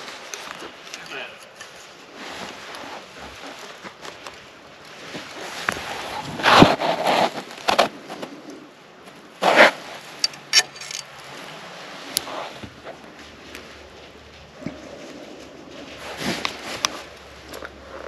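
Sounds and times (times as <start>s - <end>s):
dry leaves rustling and crunching: 0.0s - 6.4s, 13.0s - 18.0s.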